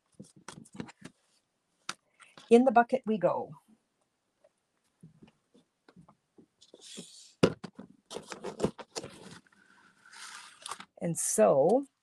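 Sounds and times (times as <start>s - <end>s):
paper rustling: 6.6s - 10.9s.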